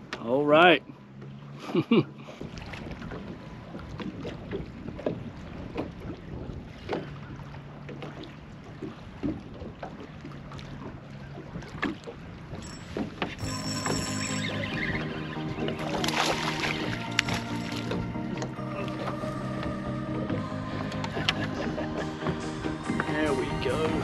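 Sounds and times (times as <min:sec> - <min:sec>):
waves slapping against boat hull: 0:01.0 - 0:14.0, 0:15.6 - 0:24.0
wind buffeting microphone: 0:02.4 - 0:07.8, 0:14.8 - 0:24.0.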